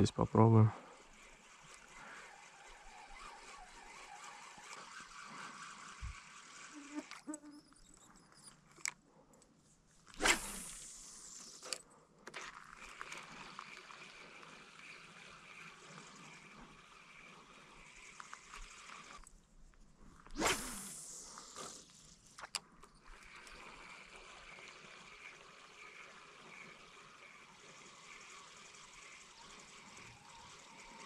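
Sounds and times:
fishing reel whirring: 0:00.0 - 0:08.9, 0:10.1 - 0:19.4, 0:20.1 - 0:31.0
fishing line cast swish: 0:00.9 - 0:07.3, 0:10.1 - 0:11.8, 0:20.2 - 0:22.4.

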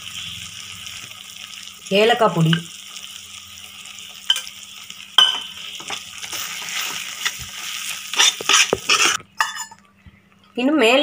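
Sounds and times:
spatula scraping a pan: 0:05.7 - 0:09.7.

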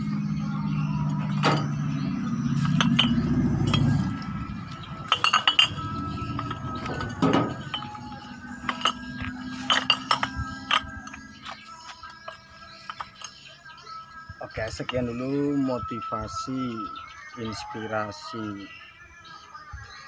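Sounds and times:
glass bottles clinking: 0:02.5 - 0:13.5.

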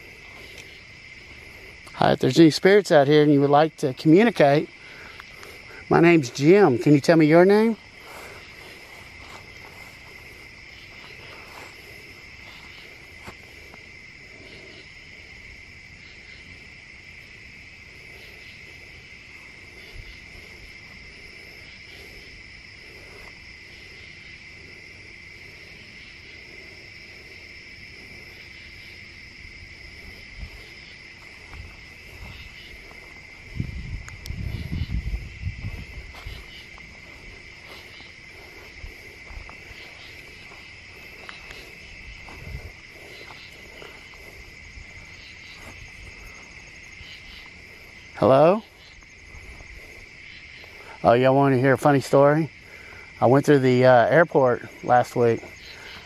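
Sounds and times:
crickets chirping: 0:00.0 - 0:56.0
low thumps and rumbling: 0:31.4 - 0:36.3.

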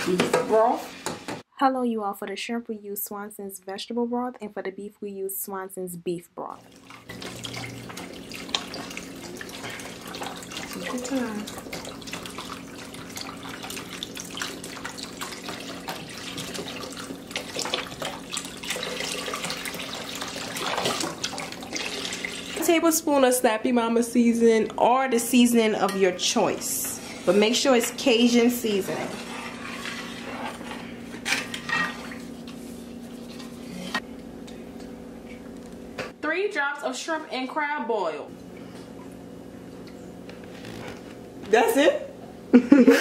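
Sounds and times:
broth pouring and splashing: 0:06.6 - 0:22.6.

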